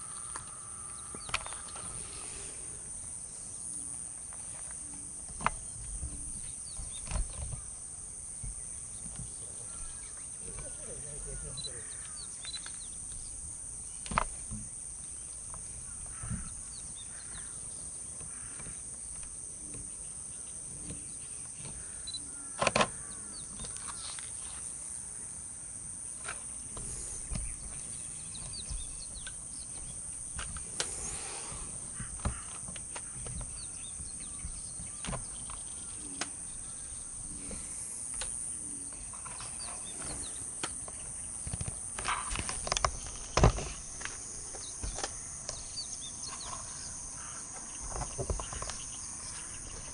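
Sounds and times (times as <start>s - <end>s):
bird chirps: 0.0s - 2.6s, 8.4s - 14.1s, 26.9s - 30.0s
high insect hum: 0.0s - 49.9s.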